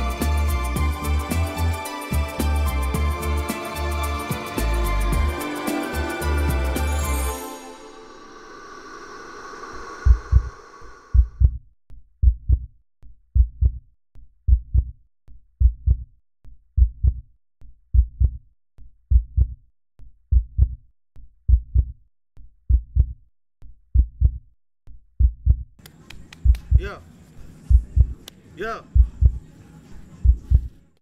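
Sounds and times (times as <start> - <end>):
sustained musical tone: 0.0 - 9.2
heartbeat thumps: 10.0 - 11.6, 12.2 - 12.8, 13.4 - 13.9, 14.5 - 15.0, 15.6 - 16.1, 16.8 - 17.3, 17.9 - 18.4, 19.1 - 19.6, 20.3 - 20.8, 21.5 - 22.0, 22.7 - 23.2, 23.9 - 24.5, 25.2 - 25.8, 26.4 - 27.0, 27.6 - 29.5, 30.2 - 31.0.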